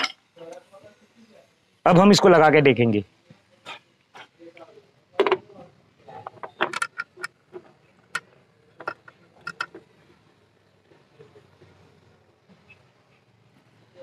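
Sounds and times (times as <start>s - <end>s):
metallic clicks and scrapes: 6.1s - 10.2s.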